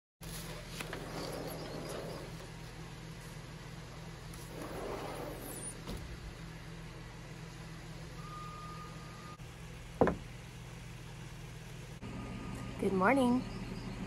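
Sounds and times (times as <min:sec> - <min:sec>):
steady low hum: 0:00.2 - 0:14.0
sliding glass door rolling: 0:00.4 - 0:08.0.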